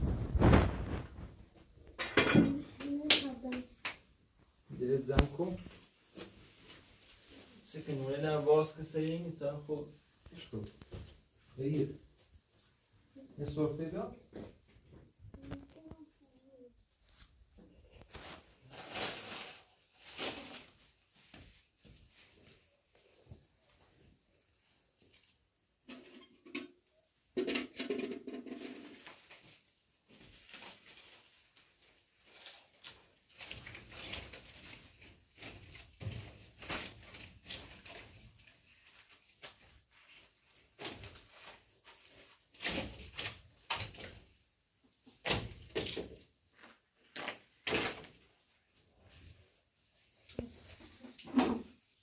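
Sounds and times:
flatbreads rustling and crinkling: 0.0 - 2.0, 15.3 - 25.3, 28.5 - 52.0.

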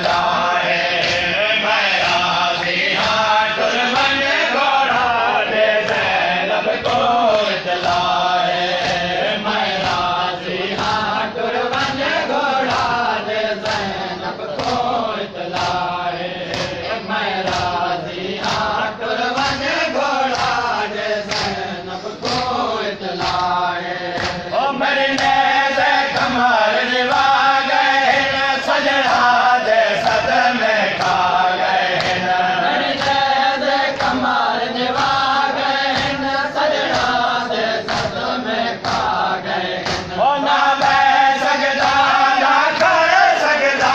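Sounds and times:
chest-beating slaps: 0.0 - 1.4, 6.8 - 11.1, 13.6 - 18.8, 19.4 - 21.6, 22.2 - 22.6, 23.2 - 24.5, 30.9 - 33.3, 33.9 - 38.2, 38.8 - 39.2, 39.8 - 42.2
men chanting a lament: 0.0 - 43.9.

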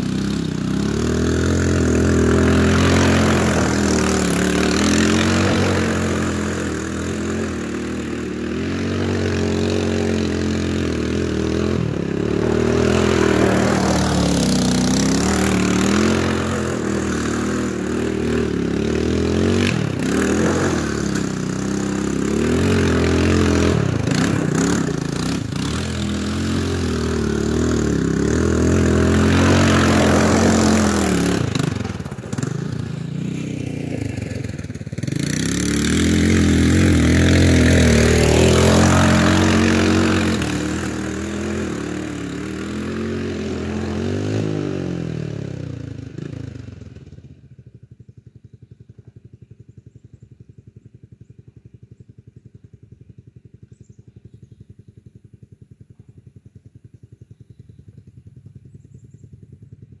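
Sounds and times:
dirt spraying from tyres: 0.0 - 32.9
quad engine revving: 0.0 - 47.7.

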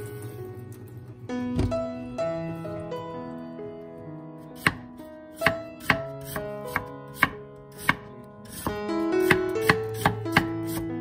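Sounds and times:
soft background music: 0.0 - 11.0
knife chopping on wooden board: 4.6 - 10.8.

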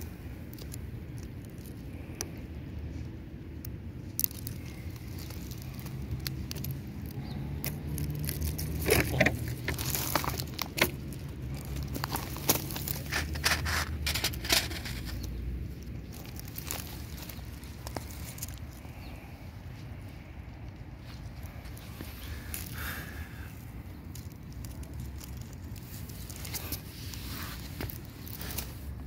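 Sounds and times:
gravel stones crunching: 0.0 - 3.0, 3.6 - 29.0
low steady rumble: 0.0 - 29.0.

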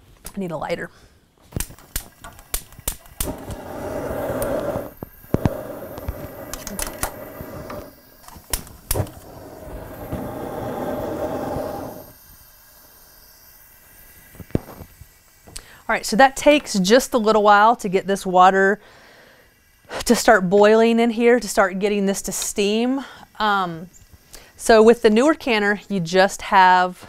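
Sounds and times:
lighter clicking: 1.6 - 12.2
rush of gas and flame: 2.8 - 15.9.

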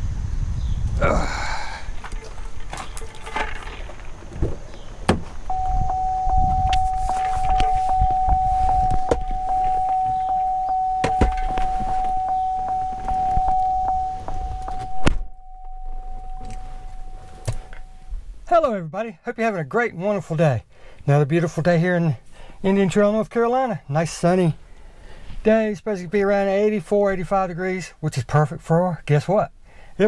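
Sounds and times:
car door shutting: 4.3 - 18.2
car door warning chime: 5.5 - 18.2.

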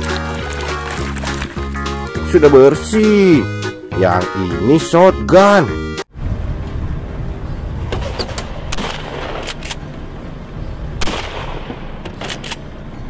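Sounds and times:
shotgun firing: 11.0 - 12.4.

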